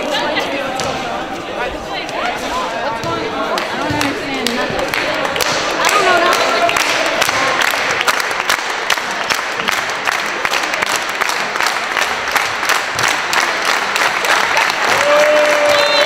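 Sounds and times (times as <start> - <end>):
crowd applauding: 3.5 - 16.0.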